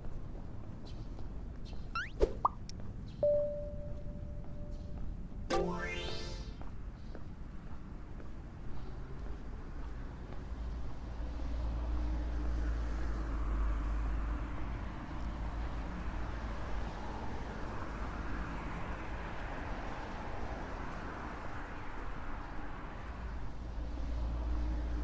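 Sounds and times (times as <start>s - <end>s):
distant road traffic: 6.5s - 25.0s.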